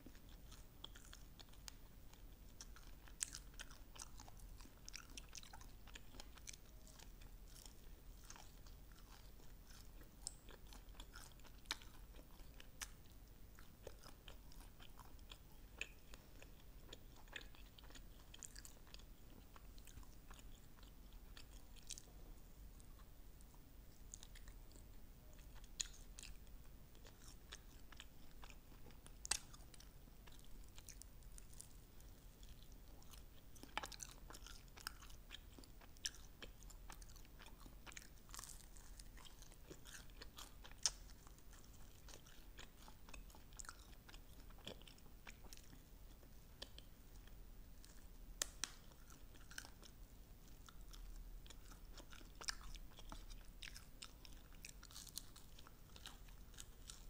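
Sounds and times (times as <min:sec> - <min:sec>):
chewing and biting chicken wings: 0:02.6 - 0:13.0, 0:13.6 - 0:22.1, 0:32.5 - 0:46.8, 0:50.5 - 0:57.0.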